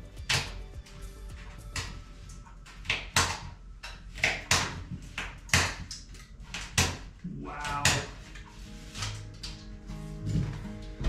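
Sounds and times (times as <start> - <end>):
hand tool scraping drywall: 7.7 - 10.7.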